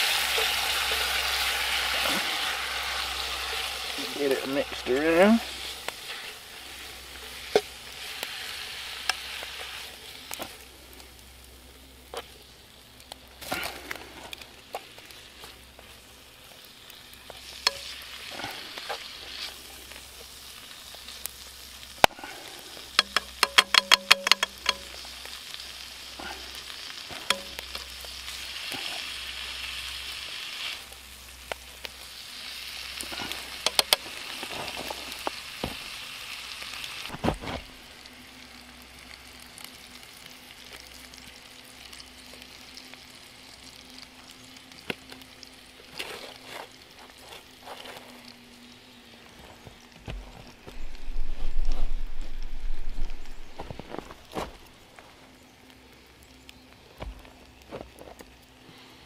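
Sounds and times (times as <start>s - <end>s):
steak sizzling in a pan: 0.0s - 49.3s, 50.8s - 54.3s
sharp tapping sounds: 23.0s - 24.9s.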